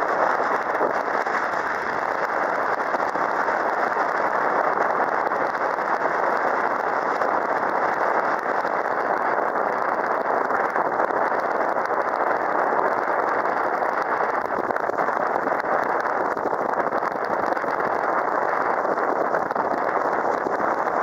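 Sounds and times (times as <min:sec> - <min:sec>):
rushing water: 0:00.0 - 0:11.0.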